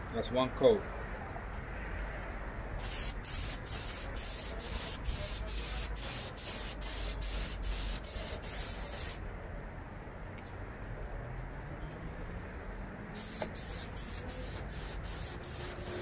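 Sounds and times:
aerosol can spraying: 0:02.8 - 0:09.2, 0:13.2 - 0:16.0.

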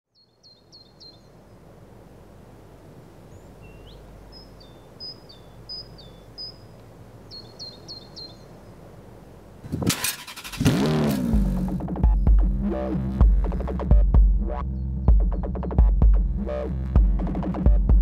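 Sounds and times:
small songbird chirping: 0:00.1 - 0:01.7, 0:03.1 - 0:09.0
faint low background noise: 0:00.1 - 0:10.7.

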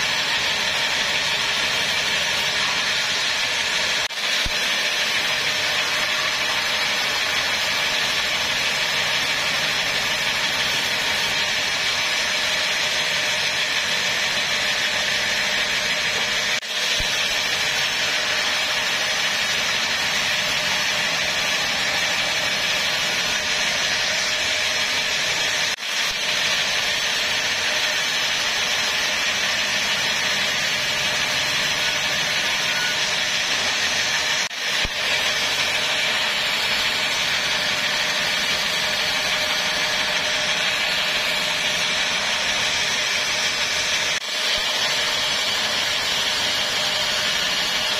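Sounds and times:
machine low drone: 0:00.0 - 0:25.7
band saw cutting wood: 0:00.0 - 0:47.9.

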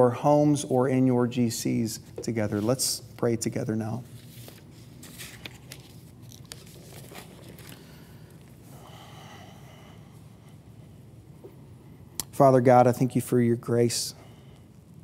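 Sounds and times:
paper rustling: 0:04.0 - 0:08.5.

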